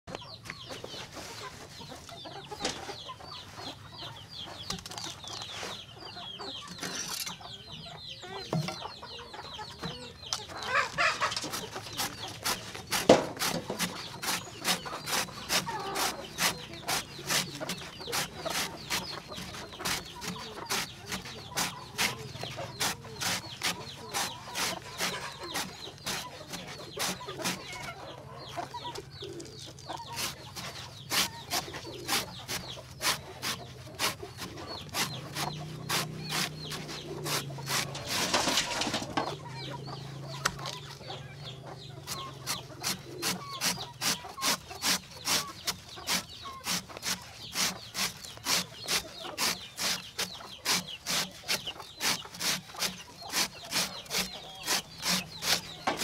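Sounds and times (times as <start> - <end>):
chickens clucking: 0.1 - 56.0
knife chopping on wooden block: 11.5 - 27.6.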